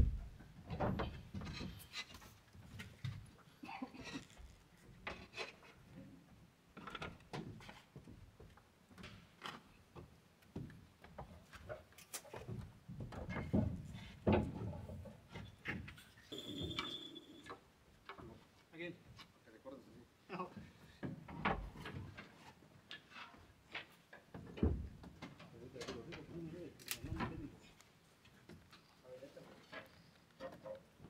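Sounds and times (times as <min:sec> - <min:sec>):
high steady tone: 0:16.3 - 0:17.5.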